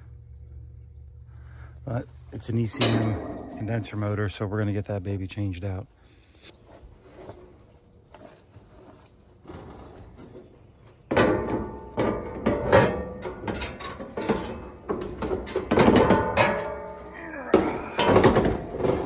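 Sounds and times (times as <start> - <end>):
sheet metal clanking and rattling: 2.6 - 4.2, 10.9 - 19.0.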